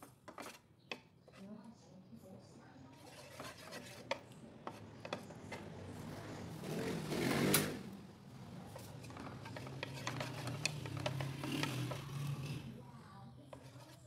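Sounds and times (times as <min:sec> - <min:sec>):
spatula scraping a frying pan: 0:00.0 - 0:01.4, 0:02.9 - 0:05.7, 0:08.7 - 0:12.8, 0:13.4 - 0:14.0.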